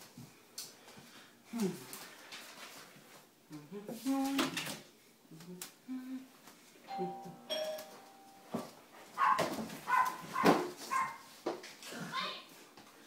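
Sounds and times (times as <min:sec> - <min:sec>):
two-tone doorbell chime: 0:06.9 - 0:08.7
dog barking: 0:09.2 - 0:11.3.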